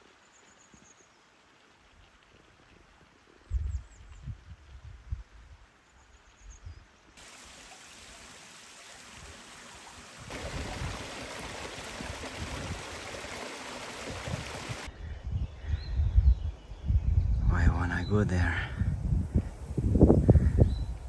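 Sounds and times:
river water rushing: 7.2s - 14.9s.

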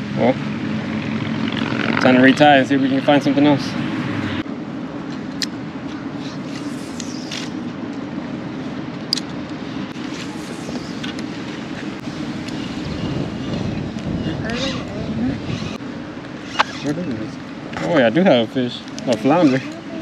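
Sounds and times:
wind on microphone: 9.8s - 15.8s.

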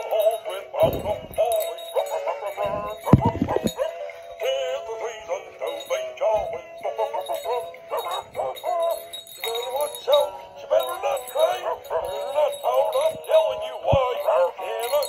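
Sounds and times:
toy dog singing through speaker: 0.0s - 15.0s
low thump: 0.8s - 1.6s, 2.8s - 3.8s.

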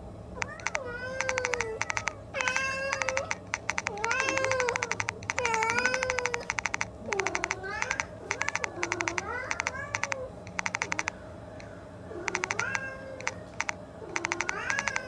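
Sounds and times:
cat meowing: 0.4s - 10.3s, 12.2s - 13.4s, 14.2s - 15.0s
quick even clicking: 0.4s - 11.2s, 12.3s - 15.0s.

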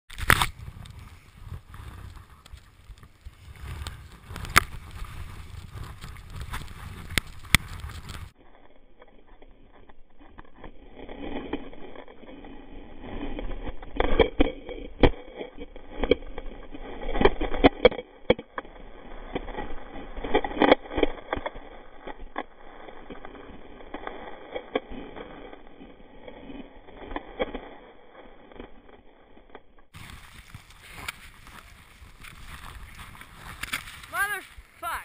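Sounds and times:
skis scraping through snow: 0.2s - 8.6s, 30.0s - 35.0s
snow scraping over camera: 0.2s - 17.8s, 18.6s - 35.0s.

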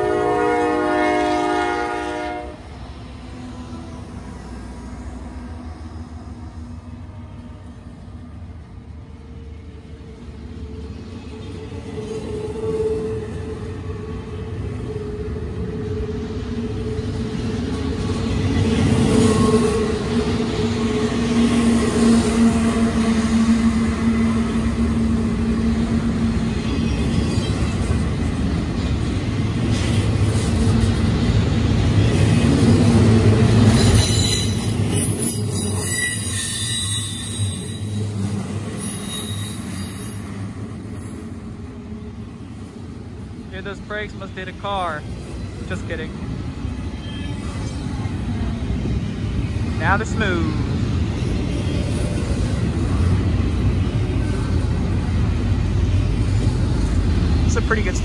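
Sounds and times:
freight train wheels rumbling: 0.0s - 58.0s
high-pitched wheel squeal: 33.8s - 40.3s.

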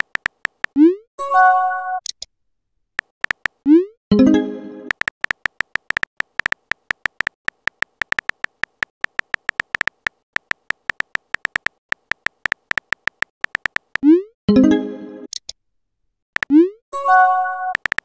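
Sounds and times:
phone keyboard typing clicks: 0.0s - 0.8s, 3.0s - 3.6s, 4.9s - 14.1s, 16.4s - 16.6s, 17.7s - 18.0s.

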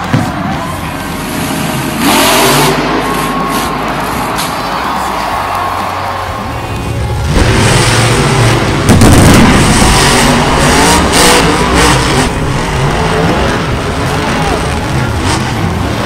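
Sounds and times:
truck engines revving: 0.0s - 16.0s
sharp loud bursts: 7.4s - 12.8s.

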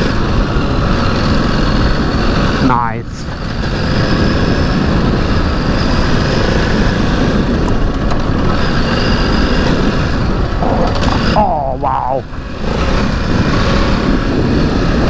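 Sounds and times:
motorcycle engine running: 0.0s - 15.0s
dense low rumble: 10.2s - 15.0s.

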